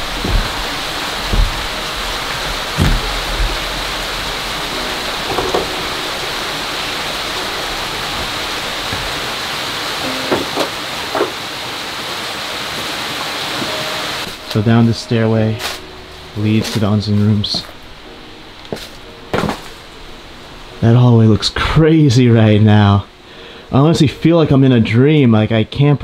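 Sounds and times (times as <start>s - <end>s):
footsteps on wooden boards: 0.0s - 6.0s, 7.2s - 9.4s, 10.1s - 11.5s, 18.6s - 19.8s
waterfall rushing: 0.0s - 21.0s.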